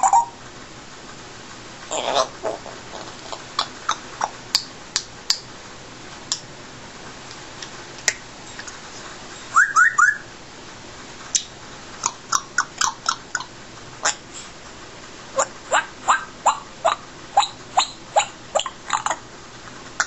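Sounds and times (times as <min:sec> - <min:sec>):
parrot clicks and chirps: 0:03.6 - 0:05.5, 0:11.3 - 0:14.2
parrot rising whistles: 0:09.5 - 0:10.3.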